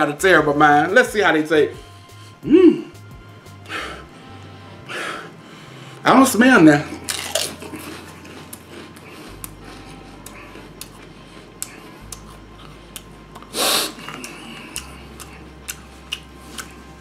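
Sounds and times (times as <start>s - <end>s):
potato chip crunching: 6.8s - 16.9s.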